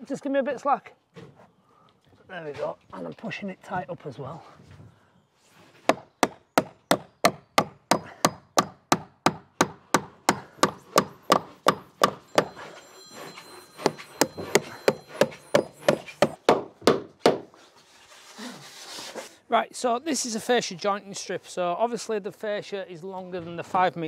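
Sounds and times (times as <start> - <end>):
hammer striking nails: 5.9 - 17.5.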